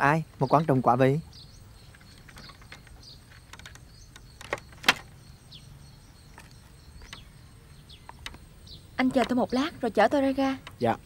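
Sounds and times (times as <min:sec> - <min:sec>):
bird chirps: 0:00.0 - 0:11.0
cycle rickshaw clicks and knocks: 0:01.8 - 0:05.6, 0:06.2 - 0:11.0.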